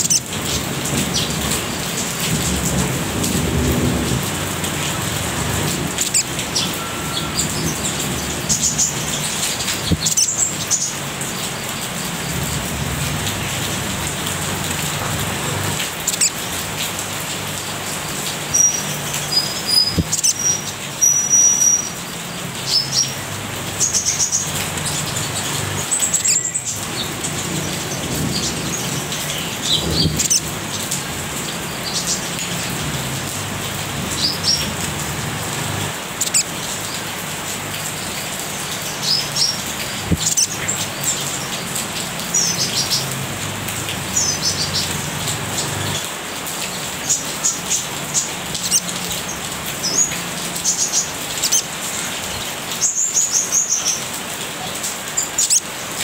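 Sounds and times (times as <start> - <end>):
bird chirping and chattering: 5.9 - 12.6, 15.5 - 16.5, 18.4 - 23.2, 23.8 - 30.9, 36.2 - 36.5, 38.0 - 43.2, 47.1 - 54.1, 55.1 - 55.7.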